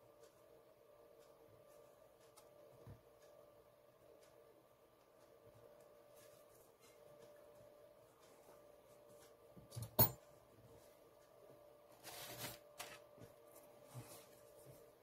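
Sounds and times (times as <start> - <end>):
plastic handling noise: 12.0 - 13.3.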